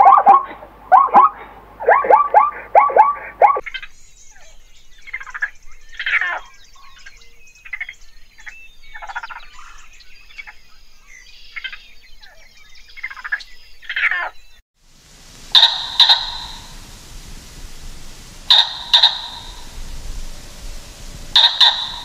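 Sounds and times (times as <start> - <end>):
raccoons chittering: 0.0 - 3.6, 15.2 - 22.0.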